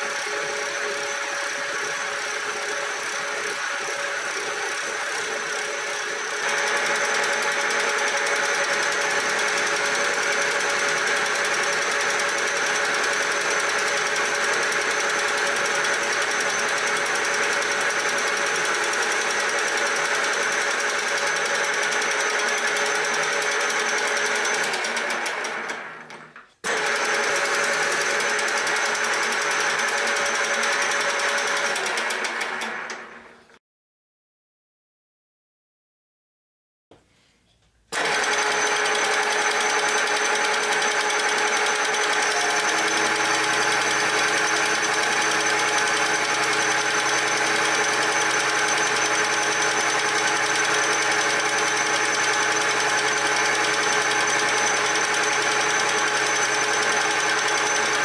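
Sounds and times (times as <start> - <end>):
milling machine cutting metal: 38.0 - 58.0.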